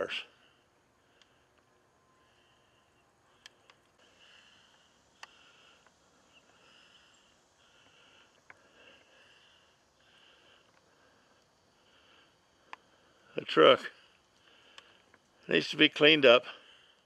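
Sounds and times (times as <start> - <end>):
sharp clicks: 3.4 - 4.0.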